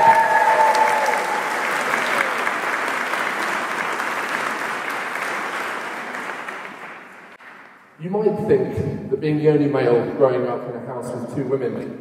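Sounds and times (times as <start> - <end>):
people applauding: 0.0 - 7.9.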